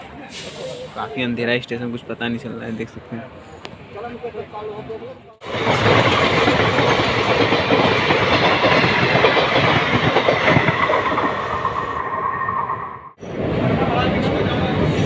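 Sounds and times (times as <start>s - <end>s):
train rushing noise: 5.4s - 15.0s.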